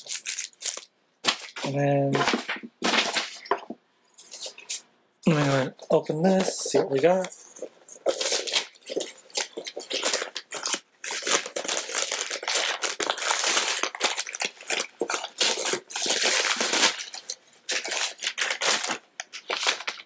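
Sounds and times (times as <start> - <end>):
packaging crinkling and tearing: 0.0 - 20.0.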